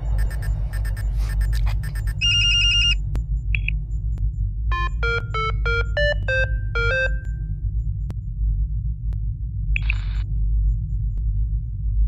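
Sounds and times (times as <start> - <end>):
electronic computer beeps: 0.0 - 3.0
steady low hum: 0.0 - 12.0.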